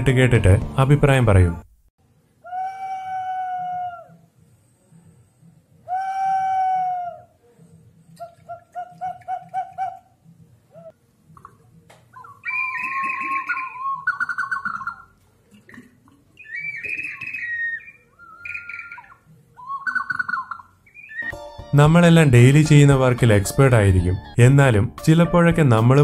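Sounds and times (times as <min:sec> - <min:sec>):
warbling chirping whistles: 0:12.2 - 0:15.1, 0:16.4 - 0:21.4.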